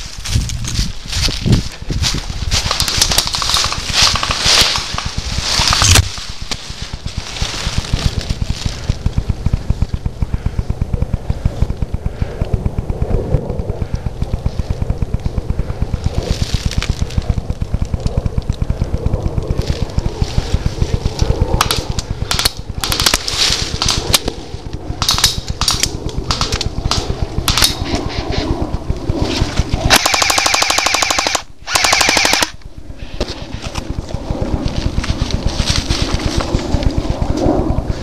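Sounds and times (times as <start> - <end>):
footsteps through dry leaves: 0.0 - 9.3, 16.0 - 17.3, 34.2 - 37.2
airsoft gun shots: 29.9 - 32.6.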